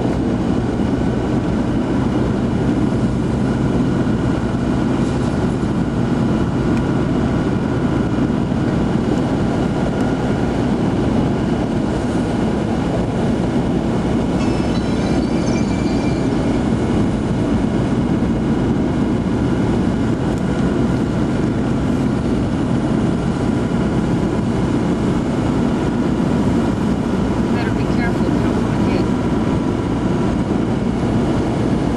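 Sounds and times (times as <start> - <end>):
engine and tyres drone: 0.0 - 31.9
faint high squeak: 14.4 - 17.1.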